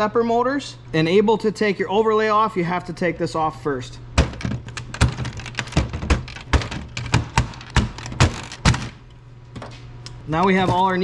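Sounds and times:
plastic clicks and knocks: 4.2s - 9.0s.

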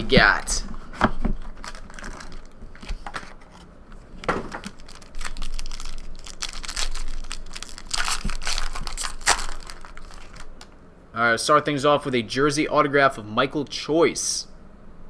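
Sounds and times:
foil wrapper crinkling and tearing: 1.4s - 3.4s, 4.5s - 10.7s.

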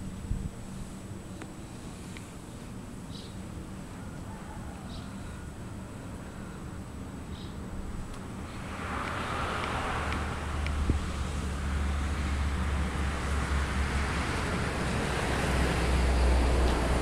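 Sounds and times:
wind buffeting microphone: 7.8s - 17.0s.

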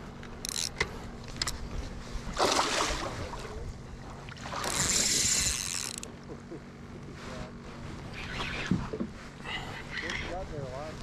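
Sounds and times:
water splashing: 2.3s - 3.5s.

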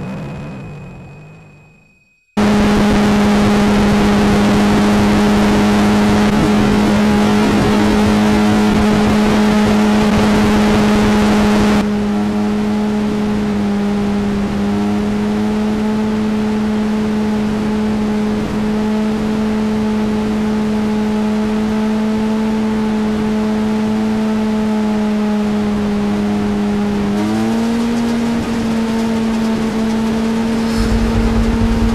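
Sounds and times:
motorcycle engine at high revs: 2.4s - 31.9s
wind rush: 30.4s - 31.9s.

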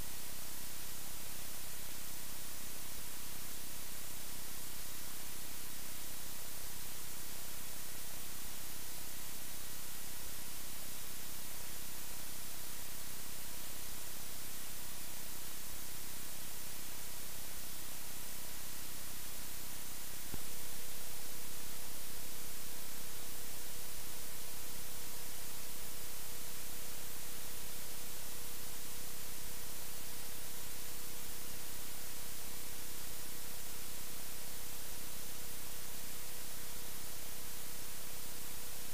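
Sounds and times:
faint hum: 0.0s - 38.9s
static hiss: 0.0s - 38.9s.

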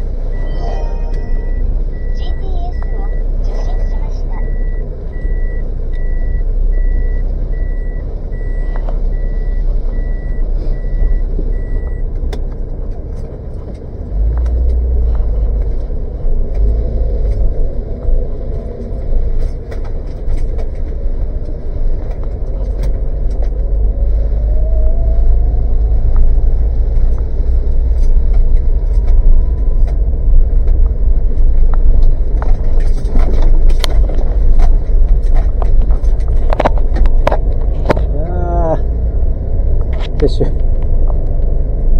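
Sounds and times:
car engine and road rumble: 0.0s - 41.9s
rising engine whine: 0.0s - 41.9s
car reversing warning beeps: 0.2s - 12.1s, 28.4s - 31.5s.

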